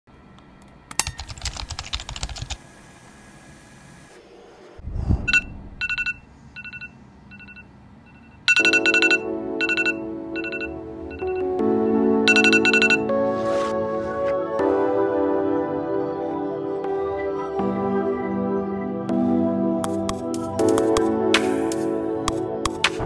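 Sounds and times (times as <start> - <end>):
phone alarm beeping: 5.2 - 11.5, 12.3 - 13.1
music with sustained chord: 9.0 - 23.0.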